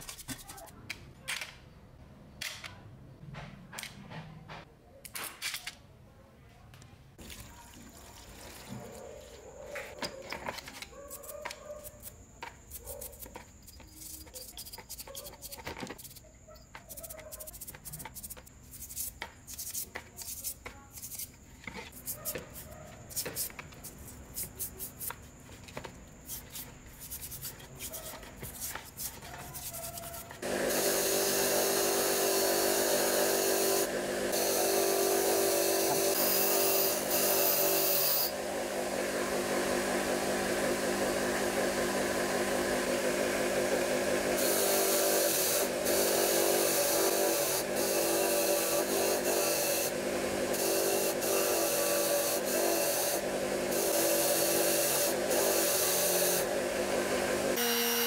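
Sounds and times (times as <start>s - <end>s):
wire brush scratching metal: 10.6s - 25.3s, 26.2s - 30.4s
bench grinder motor humming: 30.4s - 58.0s.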